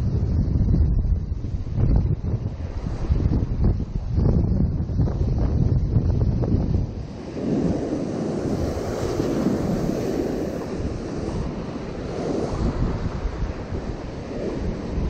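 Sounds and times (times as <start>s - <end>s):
wind buffeting microphone: 0.0s - 15.0s
ocean surf breaking: 7.0s - 15.0s.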